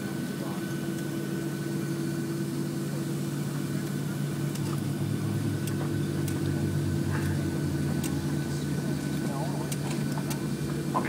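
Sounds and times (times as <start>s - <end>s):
jet engines idling drone: 0.0s - 11.0s
high whine: 3.6s - 11.0s.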